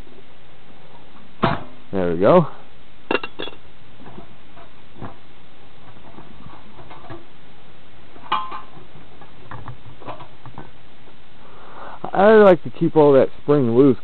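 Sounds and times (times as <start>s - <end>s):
steady background hiss: 0.0s - 14.0s
metal lid clank: 3.1s - 3.6s, 8.3s - 8.7s.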